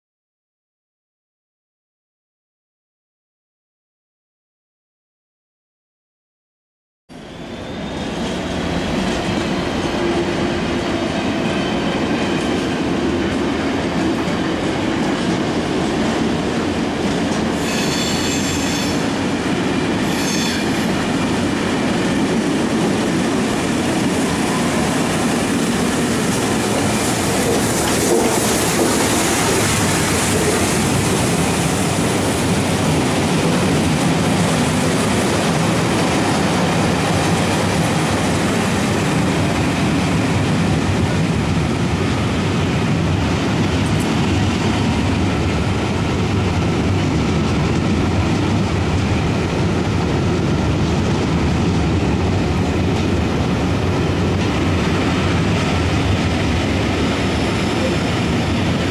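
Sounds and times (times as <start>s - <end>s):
steam locomotive running in: 7.1s - 58.9s
short shrill tones: 17.6s - 19.0s.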